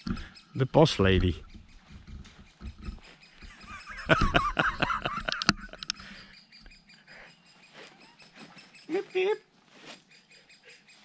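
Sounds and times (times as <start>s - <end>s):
bird chirping: 0.0s - 11.0s
sharp clicks: 1.2s - 6.1s.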